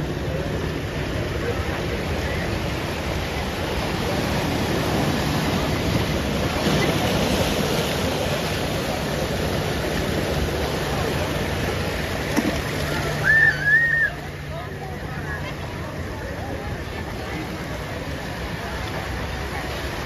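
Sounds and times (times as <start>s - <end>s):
ocean surf washing against rocks: 0.0s - 20.0s
wave breaking: 0.0s - 20.0s.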